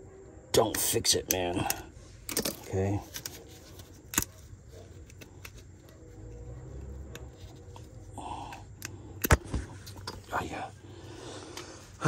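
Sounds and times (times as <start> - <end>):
light metal clicks and scrapes: 8.7 - 10.5.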